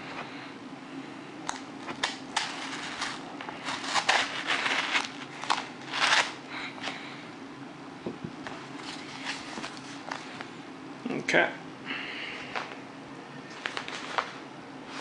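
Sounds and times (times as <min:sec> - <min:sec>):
knife cutting and tearing paper: 0:01.9 - 0:06.4.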